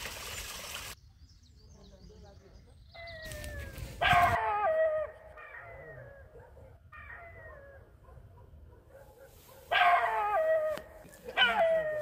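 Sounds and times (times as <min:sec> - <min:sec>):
wild canid howling: 0:03.0 - 0:07.9, 0:09.7 - 0:12.0.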